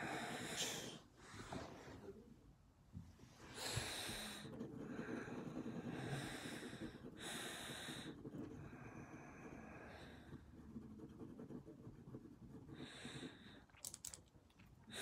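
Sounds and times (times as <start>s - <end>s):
pencil scratching on paper: 3.8s - 13.7s.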